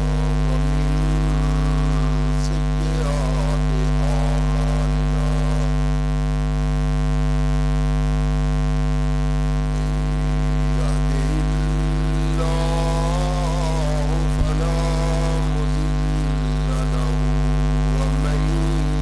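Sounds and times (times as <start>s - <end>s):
faint man's voice: 0.0s - 5.9s, 9.7s - 19.0s
electrical mains hum: 0.0s - 19.0s.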